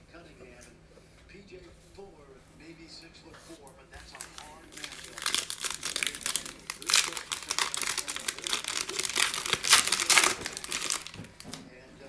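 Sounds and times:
foil wrapper crinkling: 4.0 - 11.6.

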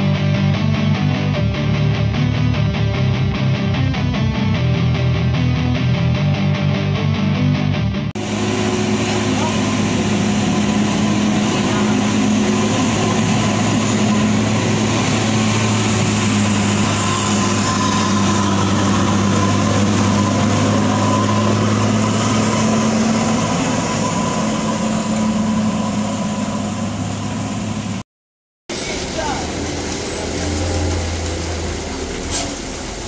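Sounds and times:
truck diesel engine drone: 0.0 - 28.0, 28.7 - 33.0
tyre hiss on wet road: 28.7 - 33.0.

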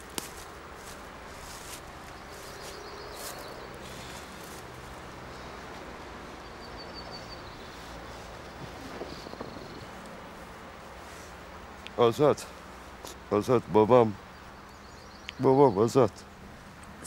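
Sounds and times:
steady background hiss: 0.0 - 17.0
faint bird chirps: 6.4 - 10.0, 14.3 - 16.1.

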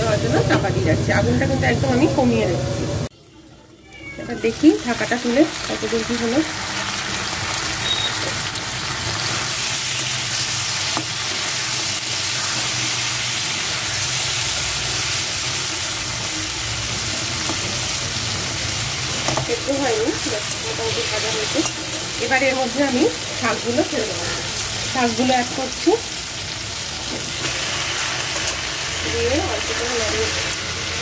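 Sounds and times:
vegetables sizzling in hot oil: 0.0 - 31.0.

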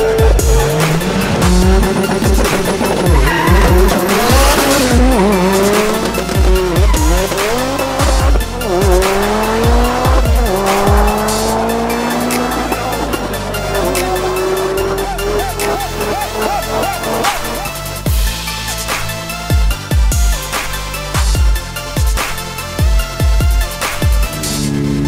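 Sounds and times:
car engine accelerating hard: 0.0 - 18.1, 24.1 - 25.0
music with thumping beat: 0.0 - 24.6.

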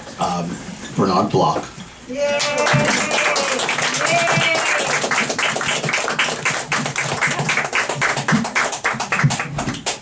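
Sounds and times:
audience applauding: 2.3 - 10.0.

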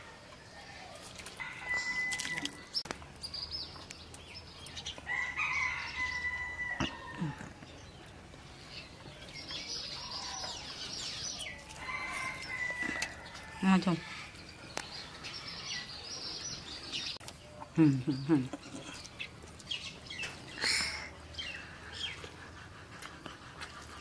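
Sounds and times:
rooster crowing: 0.8 - 2.8, 5.1 - 7.4, 11.7 - 14.3.

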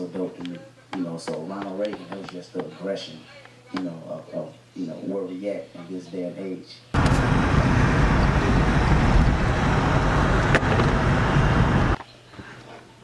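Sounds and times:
van cabin road noise: 7.0 - 12.0.

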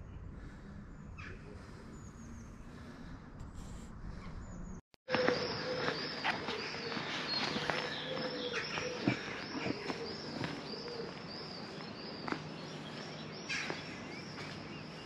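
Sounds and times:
footsteps on stone paving: 5.1 - 15.0.

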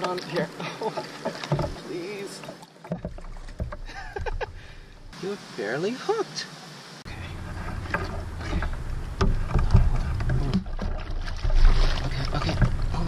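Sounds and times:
paddle splashing in water: 0.0 - 5.2, 7.1 - 13.0
knocks and clicks: 2.9 - 4.6, 7.6 - 11.6
steady low rumble: 3.7 - 5.2, 7.0 - 13.0.

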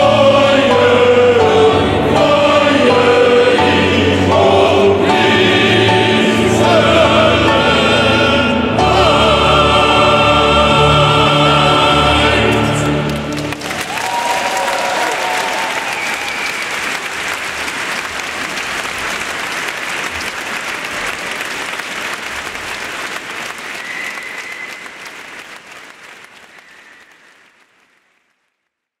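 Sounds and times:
choir chord echoing: 0.0 - 14.8
audience applauding: 12.4 - 28.6.

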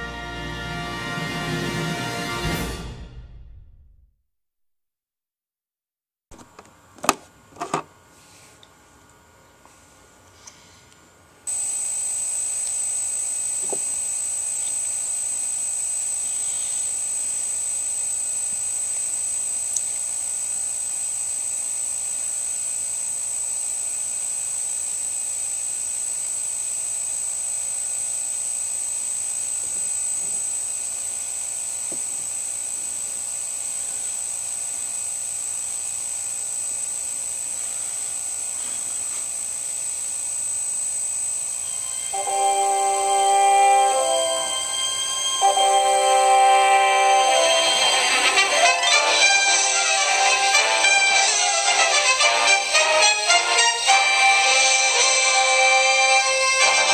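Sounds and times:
high-pitched electronic whine: 11.5 - 56.9
hiss: 37.6 - 39.4.

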